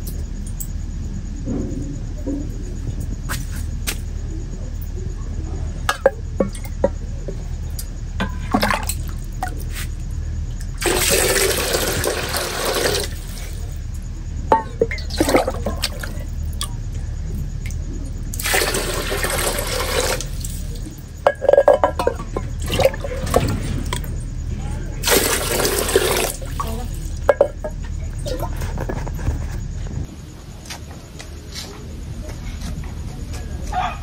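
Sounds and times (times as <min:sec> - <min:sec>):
water pouring and splashing: 0:10.8 - 0:13.6, 0:14.8 - 0:16.3, 0:18.3 - 0:24.1, 0:25.0 - 0:27.4
metal mug knocking: 0:21.2 - 0:23.3, 0:27.3 - 0:27.8.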